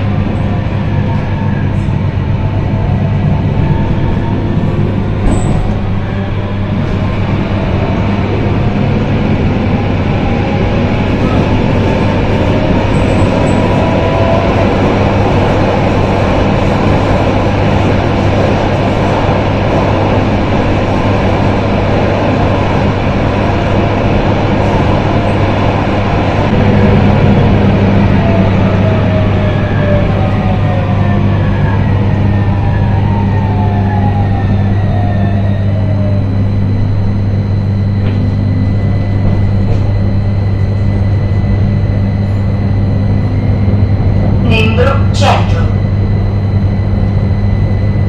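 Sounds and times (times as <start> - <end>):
tram wheels rolling on rails: 0.0 - 37.2, 38.0 - 47.8
low hum: 33.8 - 48.0.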